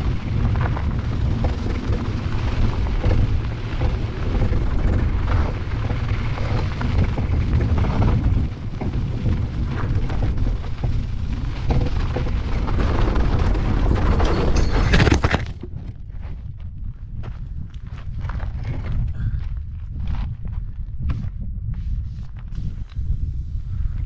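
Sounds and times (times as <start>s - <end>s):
skid spraying gravel: 0.0s - 14.9s
tyres on gravel: 0.0s - 16.5s
wind rumble on microphone: 0.0s - 24.0s.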